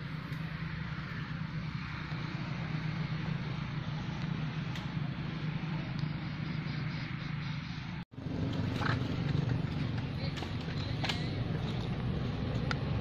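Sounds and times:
insects droning: 0.0s - 8.0s
constant low hum: 0.0s - 13.0s.

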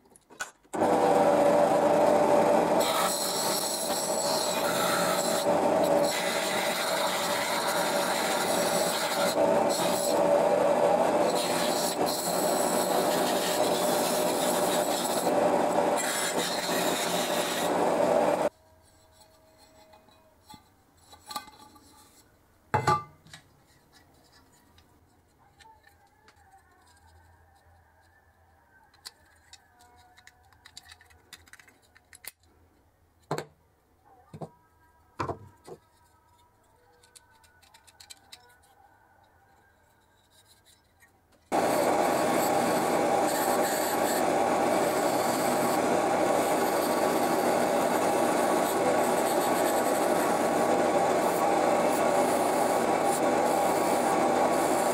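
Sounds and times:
wire brush wheel scrubbing metal: 0.8s - 20.1s, 41.5s - 54.9s
small metal parts clicking: 28.9s - 32.5s, 36.7s - 38.8s.

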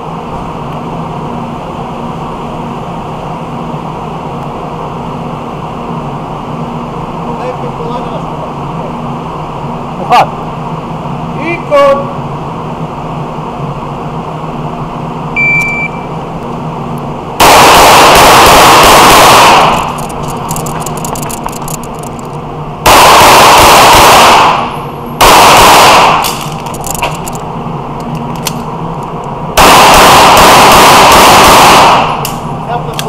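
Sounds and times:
shot timer beep: 15.4s - 16.1s
rapid pistol fire: 22.9s - 26.6s.

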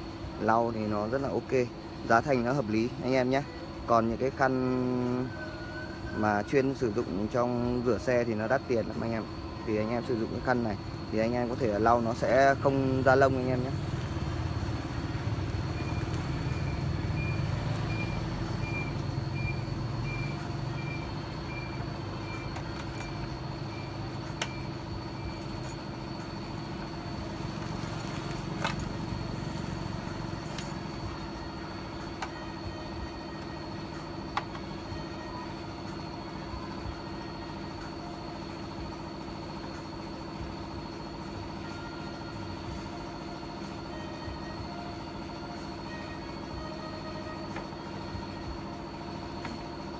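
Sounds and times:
motor running with low rumble: 0.0s - 49.9s
regular beeps: 15.6s - 26.6s.

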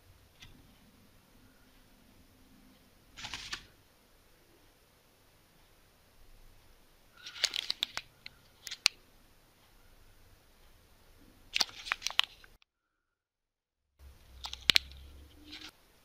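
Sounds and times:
plastic bag crinkling: 7.2s - 8.9s.

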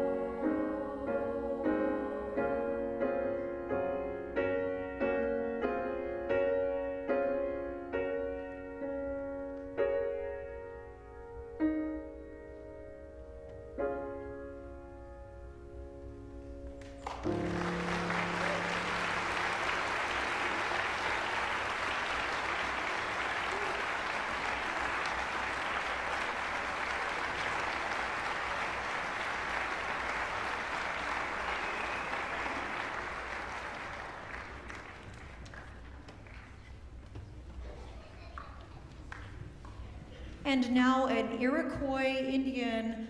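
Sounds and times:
choir with piano chord: 0.0s - 6.1s
audience applause: 17.0s - 36.8s.

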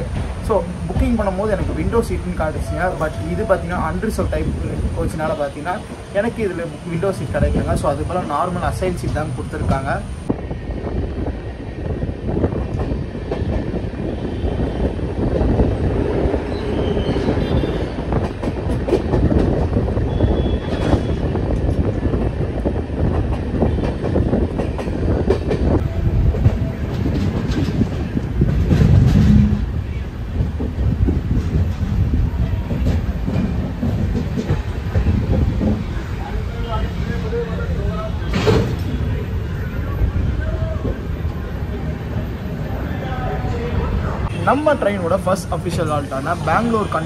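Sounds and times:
clickety-clack of rail joints: 0.0s - 10.4s, 12.3s - 39.2s
train wheels rumbling on rails: 0.0s - 47.0s.

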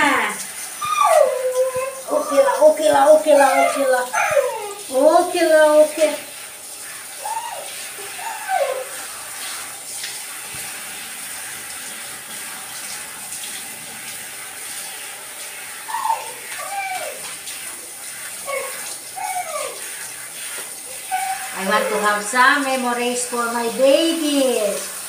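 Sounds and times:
shower water spraying: 0.0s - 25.0s.

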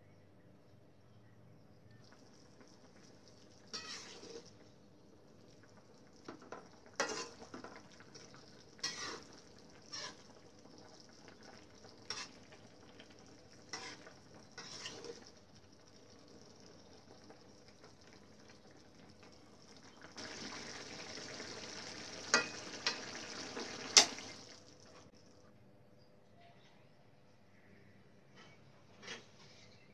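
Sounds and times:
sauce sizzling: 2.1s - 25.1s
spatula scraping a wok: 3.7s - 4.6s, 7.0s - 7.6s, 8.8s - 10.4s, 12.0s - 12.5s, 13.6s - 15.3s, 28.4s - 29.9s.

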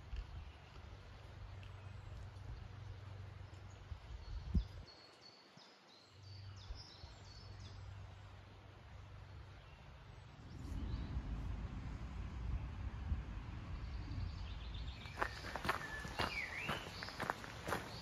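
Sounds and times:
songbird chirping: 0.0s - 18.0s
low rumble: 7.6s - 18.0s.

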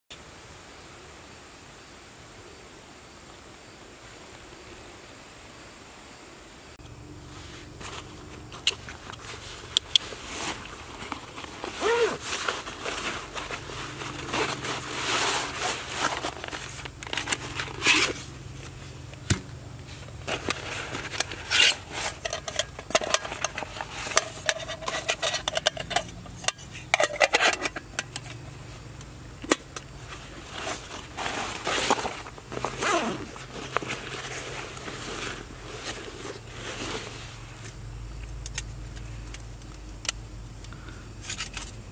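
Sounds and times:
fabric rustling: 7.3s - 19.0s, 30.0s - 37.6s
buckles clicking and scraping: 7.8s - 41.8s.

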